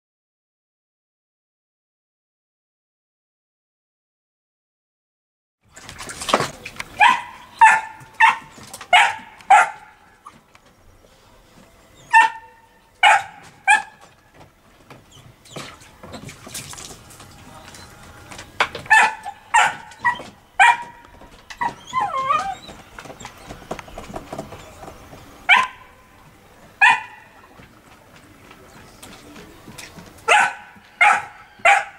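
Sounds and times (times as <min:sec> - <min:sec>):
puppy yapping: 0:07.0 - 0:10.4, 0:12.0 - 0:14.2, 0:18.8 - 0:23.4, 0:25.4 - 0:26.1, 0:26.8 - 0:27.5, 0:30.3 - 0:31.9
puppy whining: 0:11.9 - 0:14.1, 0:18.9 - 0:23.6.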